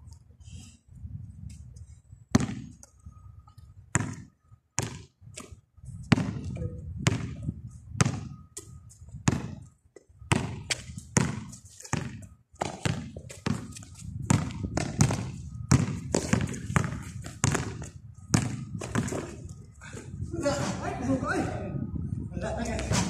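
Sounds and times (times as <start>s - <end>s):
basketball bouncing on concrete: 2.3s - 2.9s, 3.9s - 8.4s, 9.2s - 9.7s, 10.3s - 19.4s.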